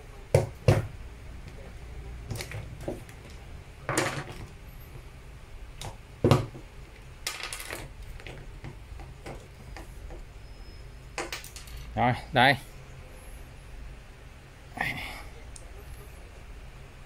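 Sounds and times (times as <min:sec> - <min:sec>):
handling noise: 0:02.2 - 0:05.1, 0:05.8 - 0:10.4
plastic parts knocking on bench: 0:03.9 - 0:04.5, 0:05.8 - 0:06.7.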